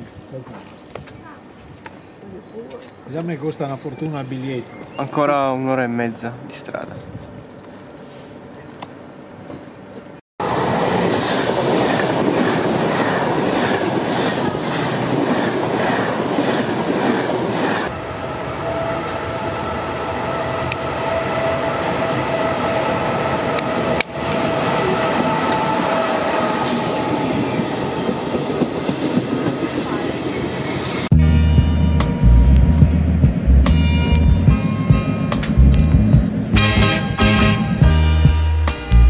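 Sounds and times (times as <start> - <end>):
train rumbling past: 3.0 - 39.0
high whine: 31.0 - 39.0.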